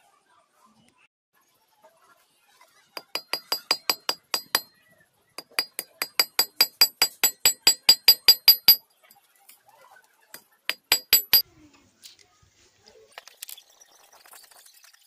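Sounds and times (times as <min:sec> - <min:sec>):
knife ratchet clicking: 0:05.4 - 0:08.8, 0:10.7 - 0:11.4.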